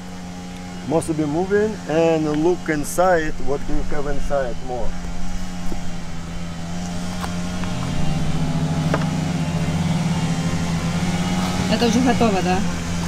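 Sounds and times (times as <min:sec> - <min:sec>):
honeybees droning: 0:00.0 - 0:13.0.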